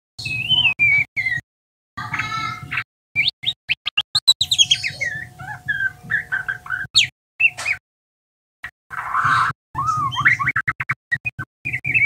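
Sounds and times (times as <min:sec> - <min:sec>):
bird chirping and whistling: 0:00.2 - 0:01.4, 0:02.6 - 0:07.8, 0:08.9 - 0:12.0.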